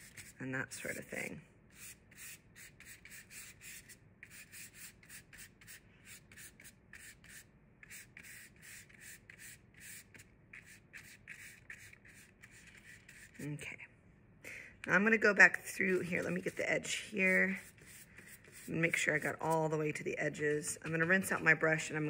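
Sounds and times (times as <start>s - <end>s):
paintbrush scrubbing on paper: 0.0s - 13.6s, 15.8s - 19.8s.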